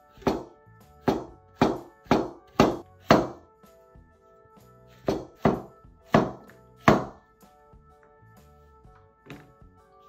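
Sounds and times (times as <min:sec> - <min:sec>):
soft background music: 0:00.0 - 0:10.0
knife chopping on wooden board: 0:00.2 - 0:03.4, 0:05.0 - 0:07.2.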